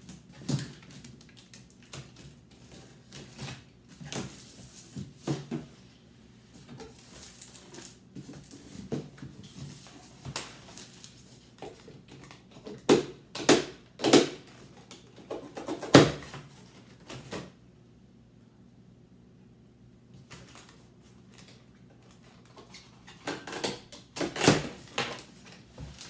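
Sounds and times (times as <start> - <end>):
plastic wrapping rustling: 6.6 - 12.4.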